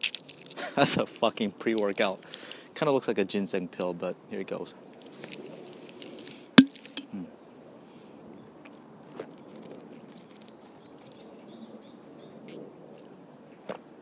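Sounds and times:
faint outdoor background: 0.0 - 14.0.

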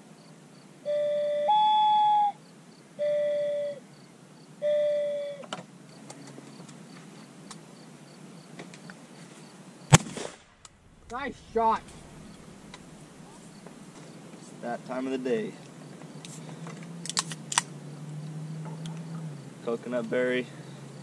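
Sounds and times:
dove cooing: 3.0 - 3.8, 4.6 - 5.5
shotgun shot: 9.9 - 12.4.

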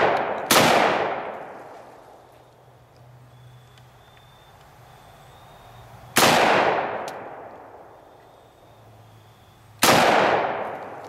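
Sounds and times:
rifle shots with echo: 0.0 - 1.7, 6.2 - 7.9, 9.8 - 11.0.

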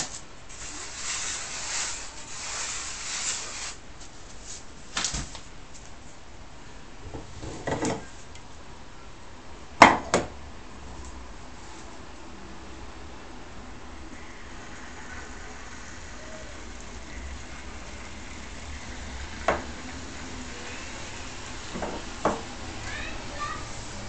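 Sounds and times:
semolina poured and rubbed in bowl: 0.5 - 3.8.

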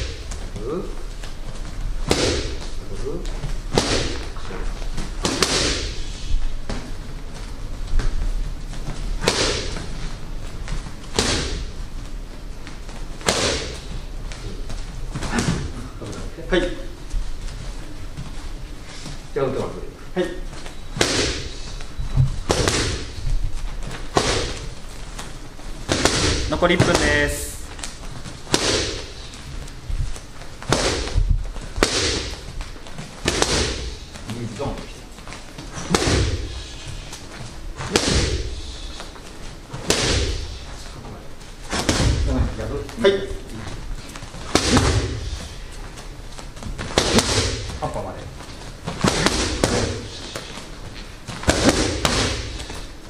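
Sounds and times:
strikes smacking focus mitts: 48.8 - 52.8.

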